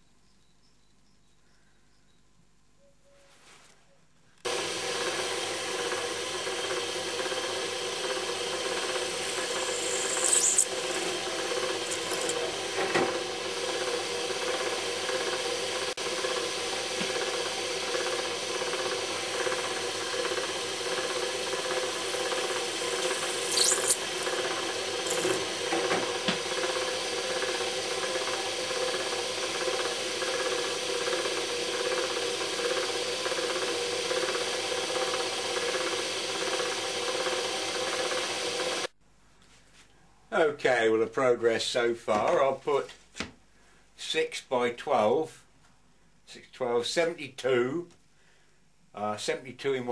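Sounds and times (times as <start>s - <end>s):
electric drill running: 4.4s - 38.9s
high scraping squeaks on plastic: 23.2s - 24.0s.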